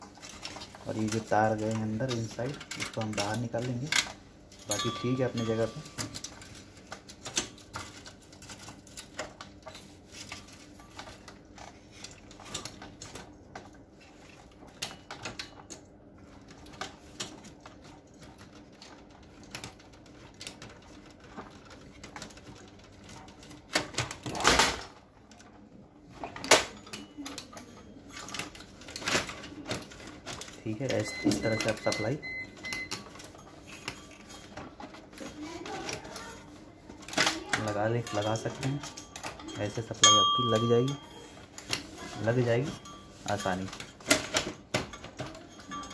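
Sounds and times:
plastic and metal parts clicking: 0.0s - 13.7s.

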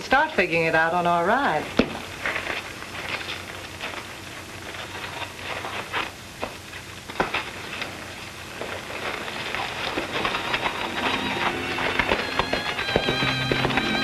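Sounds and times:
film soundtrack hiss: 0.0s - 14.0s.

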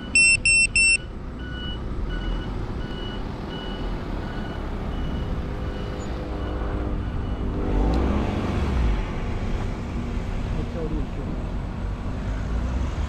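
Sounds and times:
electronic beeper two-tone beep: 0.0s - 1.8s.

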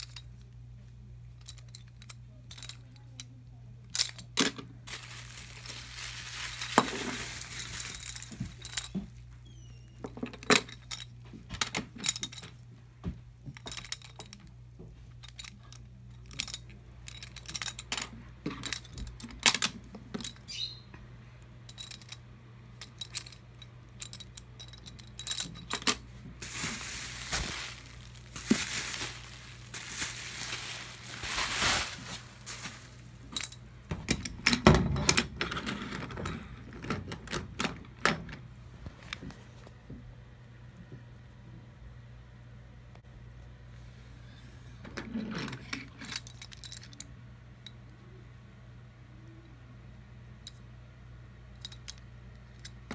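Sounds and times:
faint low hum: 0.0s - 52.9s
bubble wrap crinkling: 4.8s - 9.0s, 26.4s - 33.5s.

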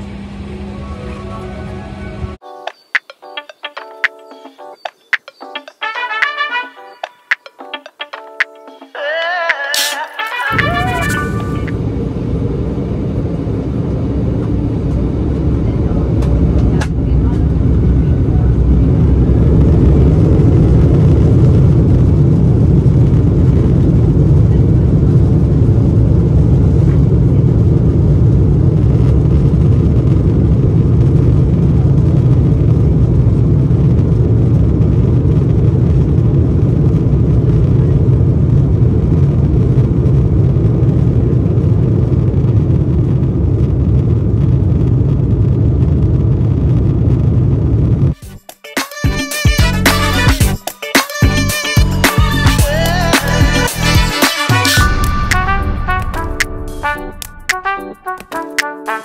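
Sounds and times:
jet engines deep rumble: 0.0s - 2.4s, 10.5s - 48.2s, 54.8s - 57.8s.

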